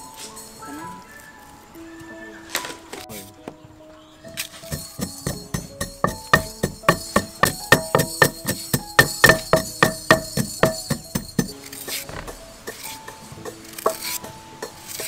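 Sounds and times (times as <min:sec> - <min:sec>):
plucked beat background music: 0:04.6 - 0:15.0.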